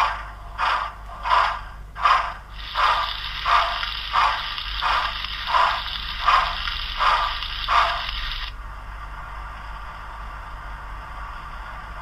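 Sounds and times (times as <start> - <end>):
model steam exhaust chuffs: 0.0 - 8.5
steady steam hiss: 2.0 - 12.0.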